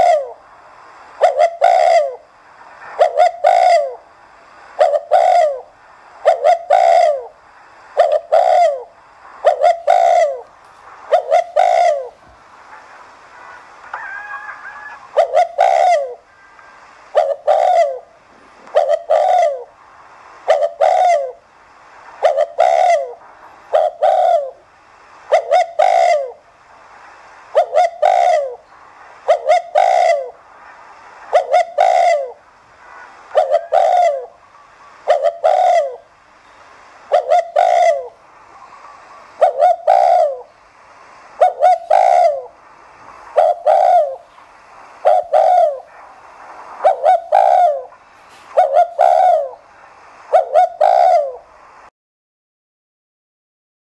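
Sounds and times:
dove cooing: 0.0 - 0.4, 1.2 - 2.3, 2.9 - 4.0, 4.8 - 7.4, 8.0 - 19.8, 20.4 - 21.4, 22.2 - 24.7, 25.3 - 26.4, 27.5 - 30.4, 31.2 - 36.1, 37.1 - 40.6, 41.4 - 44.3, 45.0 - 46.0, 46.8 - 49.7, 50.3 - 51.5.

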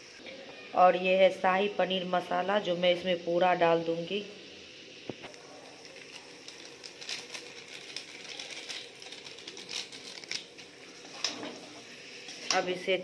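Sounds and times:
paper packet rustling: 5.8 - 11.0.

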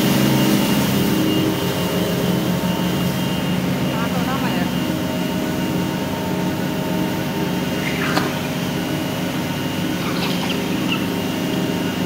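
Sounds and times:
machine hum: 4.9 - 12.0.

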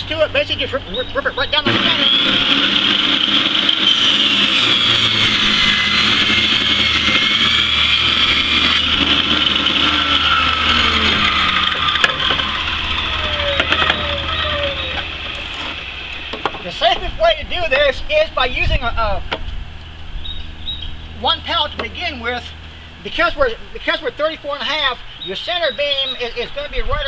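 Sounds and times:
saw blade winding down: 1.5 - 17.8
table saw ripping board: 1.6 - 16.7.

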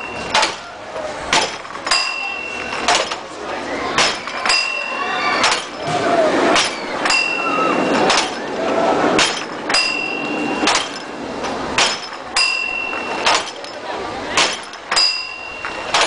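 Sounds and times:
sledgehammer strikes knocking: 1.3 - 3.2, 4.0 - 4.8, 11.8 - 13.6, 14.3 - 16.0
high striker bell ringing: 7.1 - 7.9, 9.8 - 10.5, 15.0 - 15.9.

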